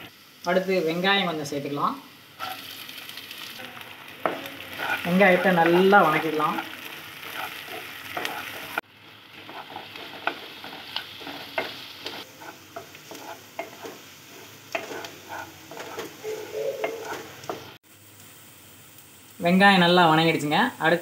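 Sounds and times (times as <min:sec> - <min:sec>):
onions sizzling in oil: 0:00.0 - 0:21.0
spatula scraping pan: 0:02.4 - 0:02.7, 0:04.2 - 0:17.8.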